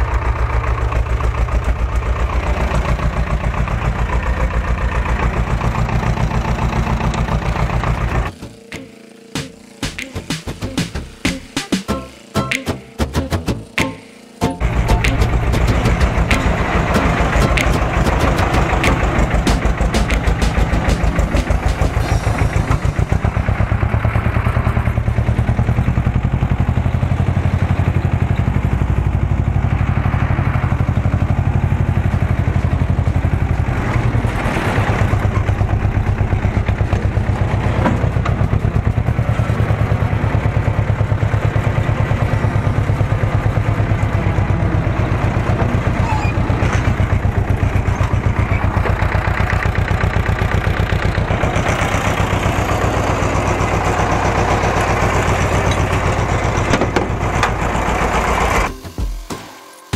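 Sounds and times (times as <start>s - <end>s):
tractor diesel engine chugging: 0.0s - 59.3s.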